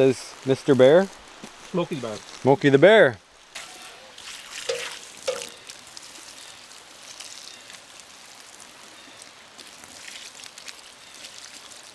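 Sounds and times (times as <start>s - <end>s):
water splashing on ash: 3.4s - 11.9s.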